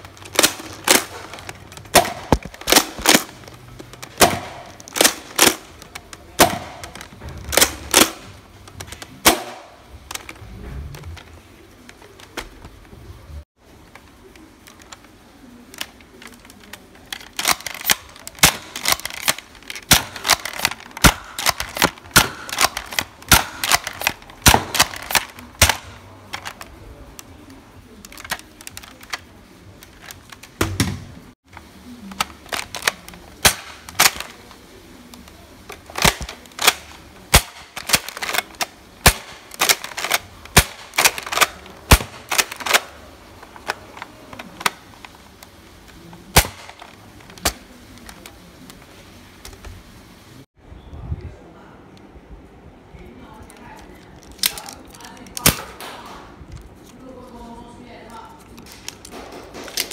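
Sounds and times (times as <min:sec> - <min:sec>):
foam dart blasters clacking: 0:00.0 - 0:10.4, 0:14.2 - 0:27.3, 0:32.1 - 0:34.6, 0:35.2 - 0:48.4.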